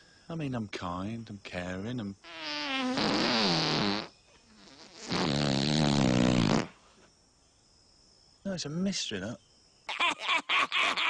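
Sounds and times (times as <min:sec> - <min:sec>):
comic farts: 0:02.3 - 0:06.8.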